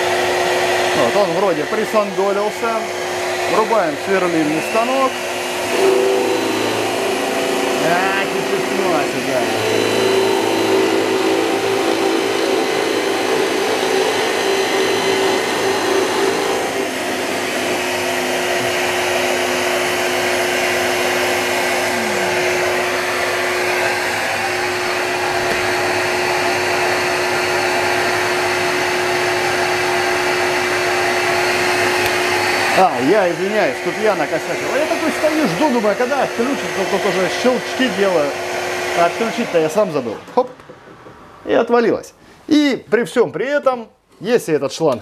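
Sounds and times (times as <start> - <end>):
shop vacuum running: 0.0 - 42.8
drill press boring into wood: 0.1 - 41.2.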